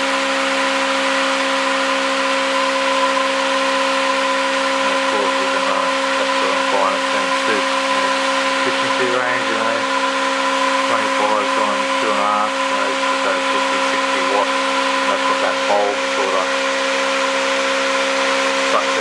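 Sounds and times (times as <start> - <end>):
pulse motor humming: 0.0 - 19.0.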